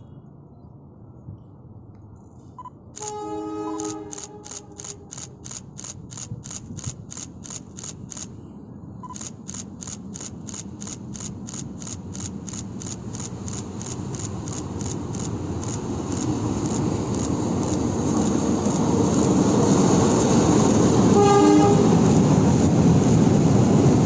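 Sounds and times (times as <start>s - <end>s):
diesel locomotive engine rumble: 0.0s - 24.0s
rapid regular ticking: 3.8s - 8.4s, 9.0s - 18.0s.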